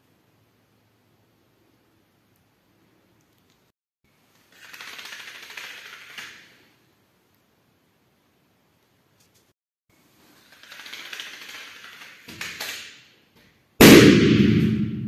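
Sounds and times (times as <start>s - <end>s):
balloon bursting bang: 13.8s - 15.0s.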